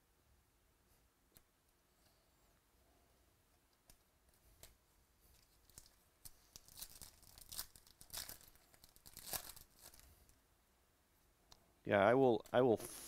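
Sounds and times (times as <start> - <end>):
foil wrapper tearing: 6.5 - 10.1.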